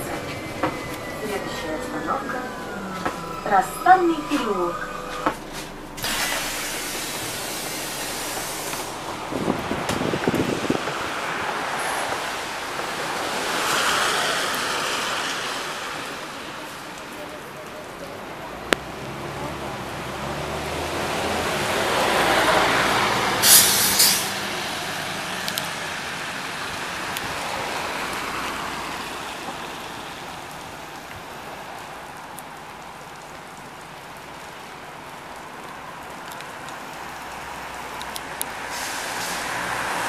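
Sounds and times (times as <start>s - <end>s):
bus engine pulling away: 0.0s - 40.0s
tyre hiss on wet road: 3.2s - 17.7s, 18.8s - 40.0s
compressed air hiss: 6.0s - 9.0s, 23.4s - 24.3s, 38.6s - 39.6s.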